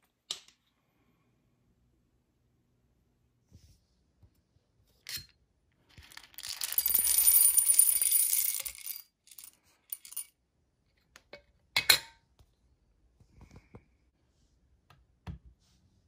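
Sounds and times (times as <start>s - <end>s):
coffee beans rattling into glass bowl: 5.9s - 10.3s.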